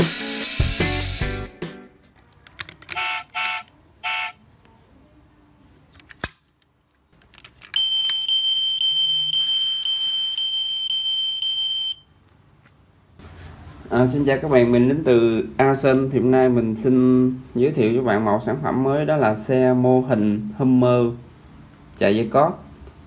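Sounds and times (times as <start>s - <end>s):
short electronic beeps: 7.8s - 12.0s.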